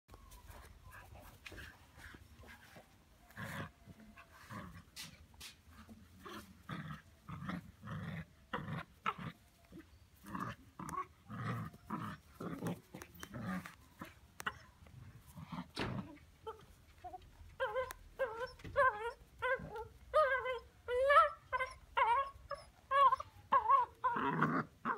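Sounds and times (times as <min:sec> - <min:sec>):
puppy growling: 0:06.2 - 0:24.9.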